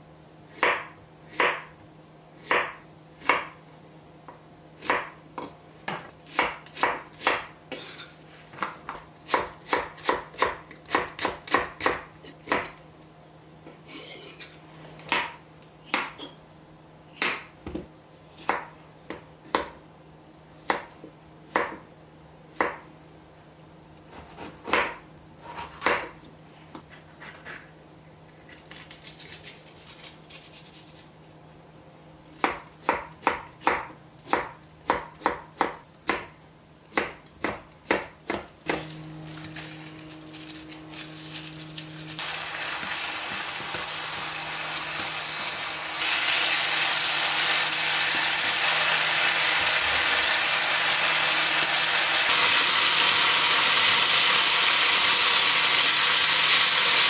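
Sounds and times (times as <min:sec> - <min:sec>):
knife chopping on wooden board: 0:00.6 - 0:01.7, 0:02.5 - 0:03.6, 0:04.8 - 0:07.9, 0:08.6 - 0:12.7, 0:15.1 - 0:16.2, 0:24.1 - 0:26.1, 0:32.4 - 0:36.3, 0:36.9 - 0:38.9.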